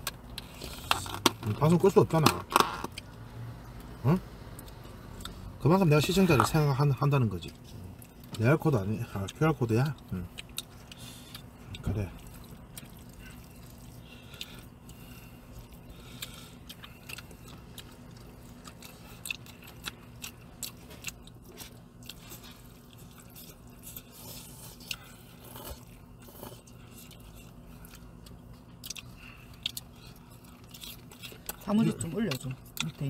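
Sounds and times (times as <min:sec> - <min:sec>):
person chewing food: 0:00.0 - 0:01.4, 0:04.5 - 0:05.5, 0:09.1 - 0:33.0
low steady hum: 0:00.0 - 0:33.0.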